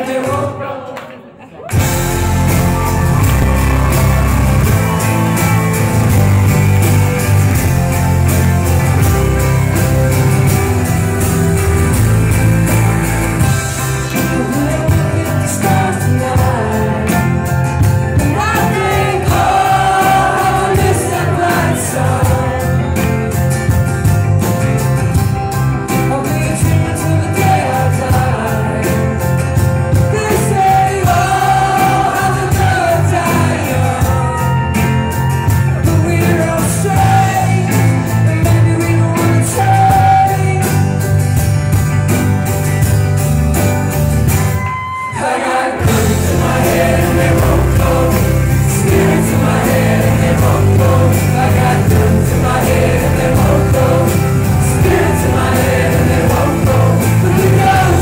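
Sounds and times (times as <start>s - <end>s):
woman and man singing: 0.0s - 1.7s, 14.1s - 17.5s, 18.2s - 23.1s, 25.9s - 35.1s, 35.8s - 40.8s, 45.0s - 58.0s
live folk-rock band playing: 1.7s - 58.0s.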